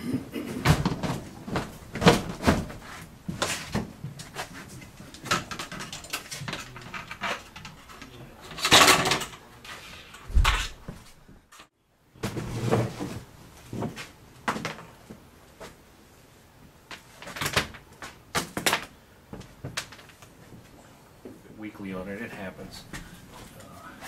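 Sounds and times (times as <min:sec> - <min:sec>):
plastic parts knocking and clattering: 0:00.6 - 0:09.4.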